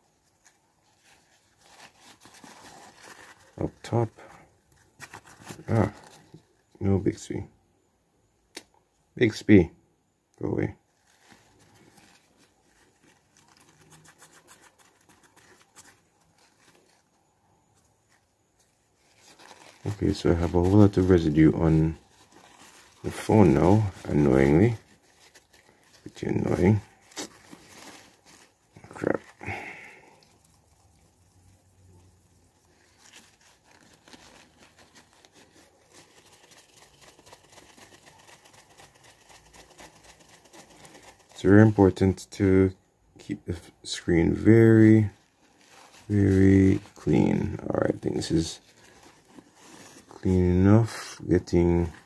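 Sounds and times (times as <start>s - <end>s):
tissue scrubbing glass screen: 18.6s - 41.8s, 44.1s - 52.0s.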